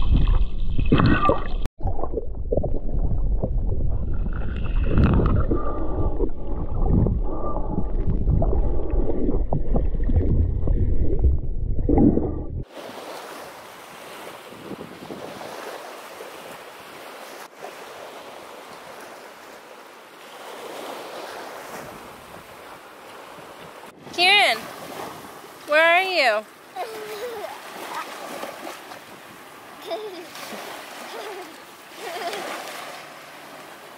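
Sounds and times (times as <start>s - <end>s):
water and wind rumble on microphone: 0.0s - 33.9s
ocean waves washing: 3.8s - 33.9s.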